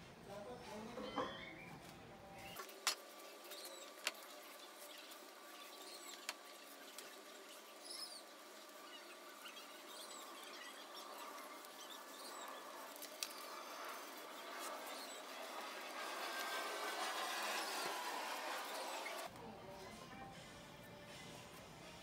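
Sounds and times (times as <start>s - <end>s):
paint roller rolling on steel: 2.3s - 19.3s.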